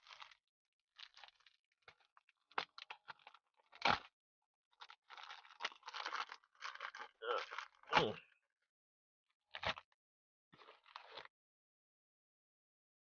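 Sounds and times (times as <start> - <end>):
packaging crinkling and rustling: 0.0 - 0.4, 1.0 - 4.1, 4.8 - 8.1, 10.6 - 11.3.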